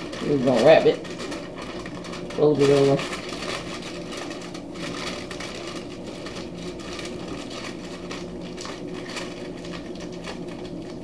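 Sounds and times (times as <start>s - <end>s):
aluminium foil crinkling: 0.0s - 11.0s
steady low hum: 0.0s - 11.0s.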